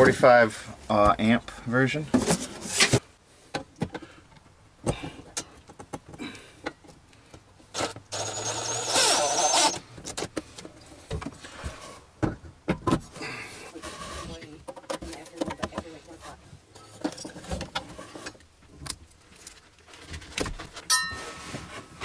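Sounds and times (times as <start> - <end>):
cordless drill whining: 7.8 - 9.8.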